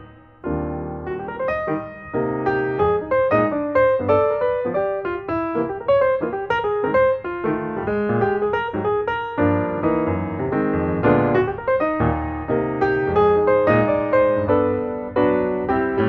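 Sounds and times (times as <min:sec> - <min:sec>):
piano music: 0:00.0 - 0:16.0.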